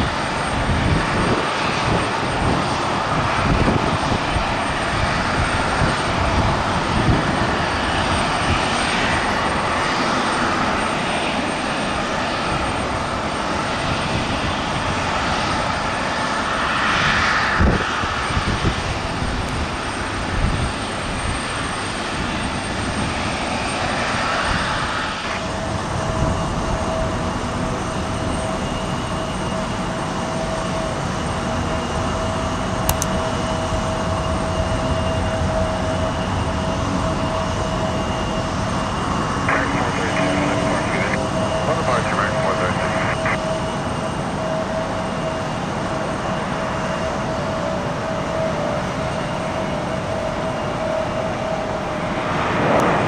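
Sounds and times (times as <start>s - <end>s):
jet engines rushing: 0.0s - 53.0s
steady whine: 23.2s - 26.0s, 39.0s - 44.7s, 50.0s - 53.0s.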